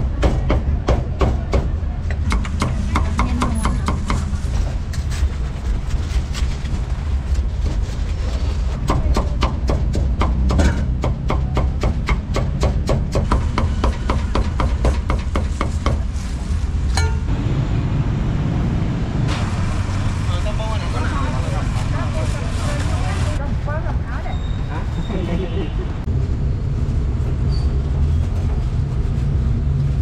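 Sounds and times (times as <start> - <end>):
steady low rumble: 16.0 - 24.1.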